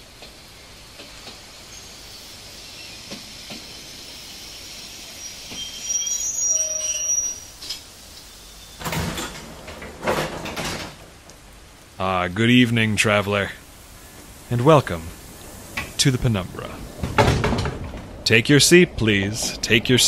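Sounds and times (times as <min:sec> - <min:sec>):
faint steady hiss: 0:00.0 - 0:20.0
loud hissing bursts: 0:00.0 - 0:20.0
train squeal: 0:01.7 - 0:08.9.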